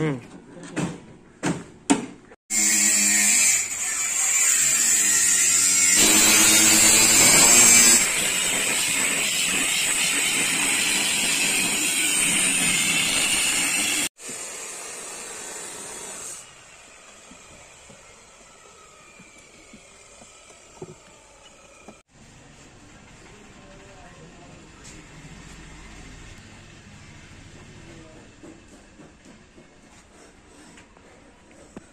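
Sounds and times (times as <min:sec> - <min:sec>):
electric sander grinding: 0:04.8 - 0:14.0.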